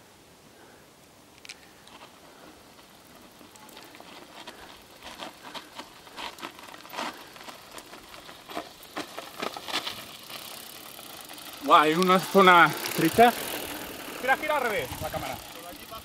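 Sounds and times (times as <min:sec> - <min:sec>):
bike tyres crunching over grit: 0:01.6 - 0:16.0.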